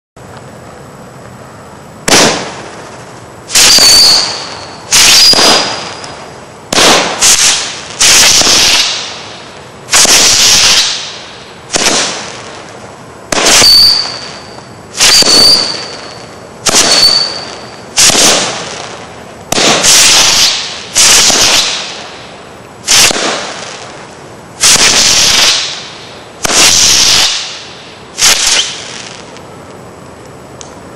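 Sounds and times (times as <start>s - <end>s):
fireworks bangs: 2.0s - 29.4s
short high firework whistle: 3.5s - 6.2s, 6.8s - 9.2s, 9.9s - 12.2s, 13.3s - 18.9s, 19.6s - 22.1s, 22.9s - 23.8s, 24.6s - 29.3s.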